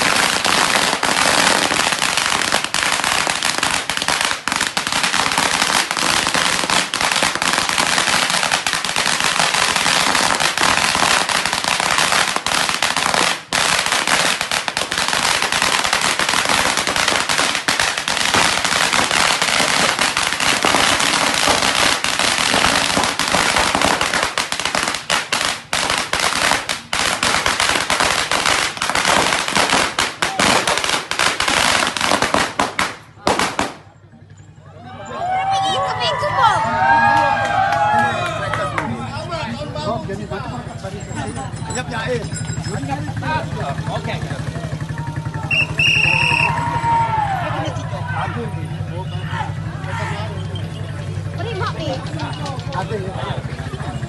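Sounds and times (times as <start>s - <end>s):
firecrackers crackling: 0.0s - 34.4s, 35.8s - 54.0s.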